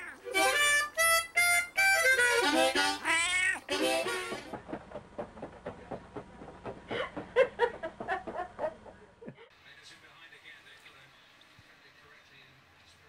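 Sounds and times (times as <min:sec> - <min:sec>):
cat meowing: 0:00.0 - 0:00.4, 0:03.0 - 0:03.7.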